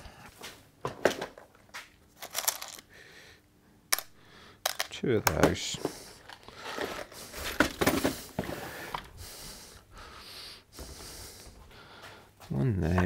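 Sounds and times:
screws and wooden blocks clicking: 2.2 - 2.9
quiet rubbing and shuffling: 5.6 - 9.8, 10.7 - 13.0.

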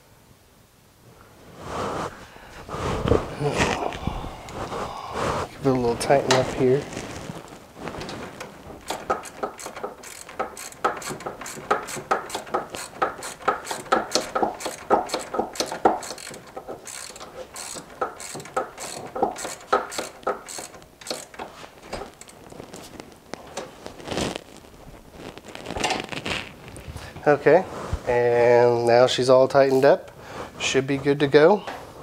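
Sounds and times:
ratchet wrench clicking: 8.9 - 22.4.

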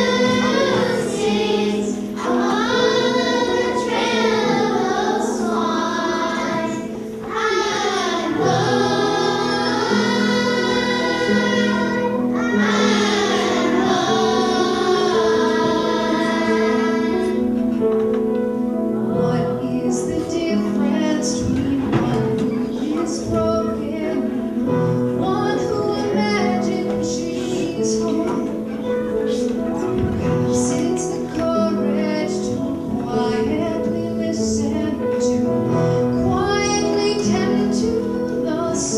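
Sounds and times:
children's choir singing: 0.0 - 38.9
piano accompaniment: 0.0 - 38.9.

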